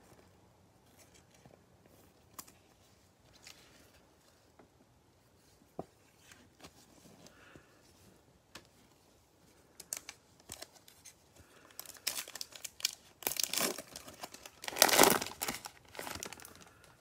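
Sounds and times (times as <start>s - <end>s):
foil wrapper crinkling and tearing: 11.5s - 16.9s.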